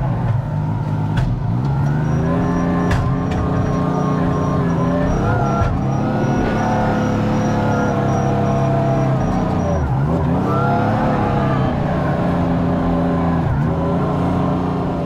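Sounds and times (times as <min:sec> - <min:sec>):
diesel engine running: 0:00.0 - 0:15.0
faint high-pitched beeping: 0:01.7 - 0:11.8.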